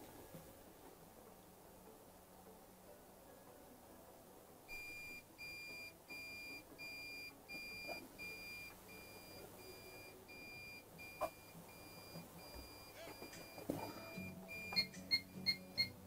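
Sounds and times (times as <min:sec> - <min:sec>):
alarm keypad warning beeps: 0:04.7 - 0:16.0.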